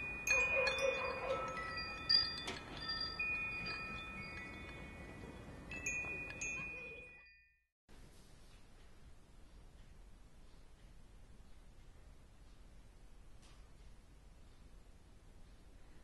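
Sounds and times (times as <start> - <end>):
wind chimes ringing: 0.0 - 7.6.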